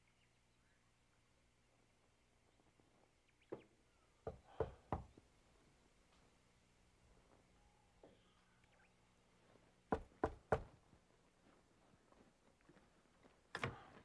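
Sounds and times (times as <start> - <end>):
knocks on wooden door: 9.9 - 10.7.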